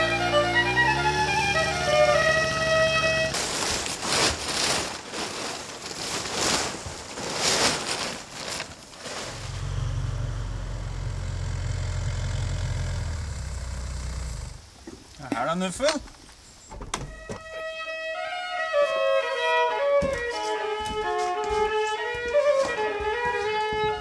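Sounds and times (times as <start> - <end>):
motor idling: 9.2 - 14.8.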